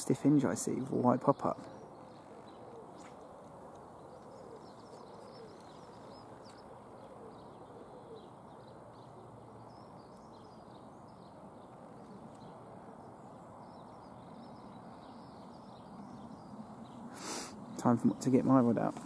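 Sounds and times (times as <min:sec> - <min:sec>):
small birds chirping: 0:00.0 - 0:19.0
low wind rumble: 0:08.3 - 0:19.0.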